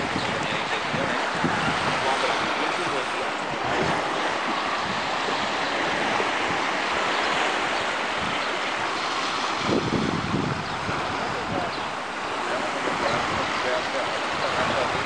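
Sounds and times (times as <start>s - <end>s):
sea water washing: 0.0s - 15.0s
wind on microphone: 0.0s - 15.0s.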